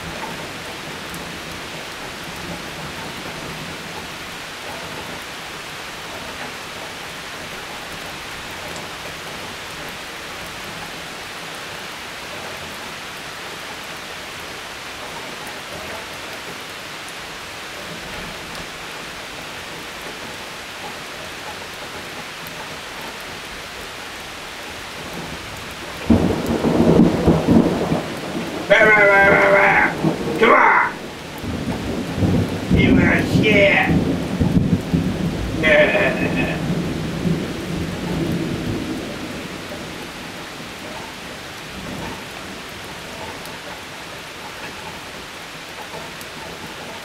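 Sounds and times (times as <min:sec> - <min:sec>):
steady rain: 0:00.0 - 0:47.0
thunderclap rumbling: 0:17.5 - 0:47.0.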